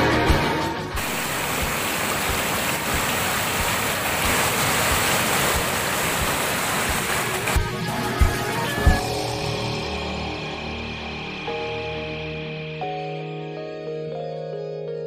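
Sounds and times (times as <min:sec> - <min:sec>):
rapids rushing over boulders: 0:01.0 - 0:07.7.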